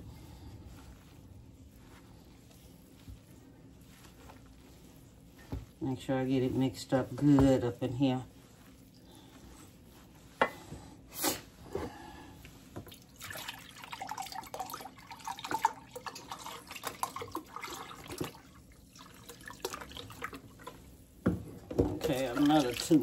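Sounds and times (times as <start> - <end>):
liquid pouring and splashing: 12.4 - 23.0.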